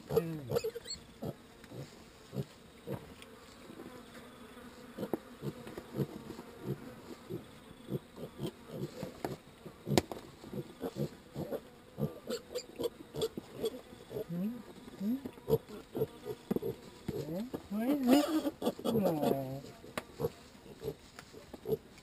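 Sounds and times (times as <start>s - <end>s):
piglets grunting: 18.0s - 19.6s.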